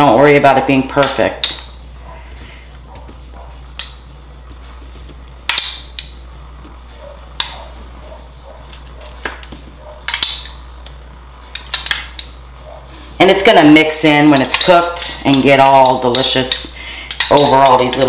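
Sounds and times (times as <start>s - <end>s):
metal spoon clinking and tapping: 3.8s - 4.0s, 5.5s - 6.2s, 10.0s - 10.6s, 11.5s - 12.4s, 14.3s - 18.0s.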